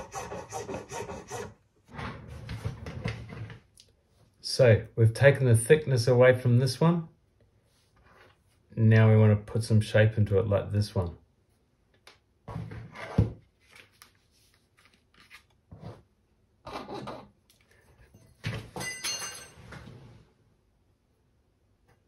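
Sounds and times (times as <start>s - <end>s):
hand file scraping: 0.0s - 1.6s.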